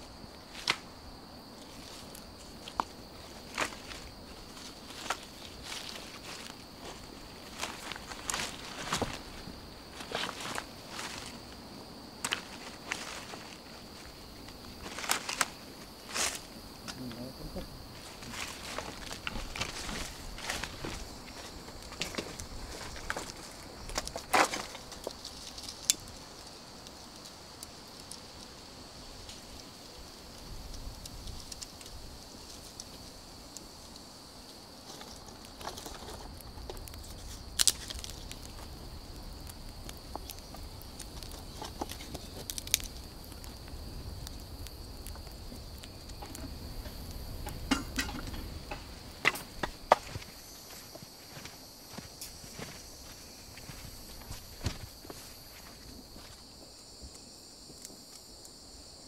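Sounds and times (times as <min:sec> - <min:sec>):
dry sticks snapping: 0:00.5 - 0:00.8, 0:12.2 - 0:13.5, 0:14.8 - 0:17.0, 0:18.2 - 0:26.2, 0:34.9 - 0:50.2.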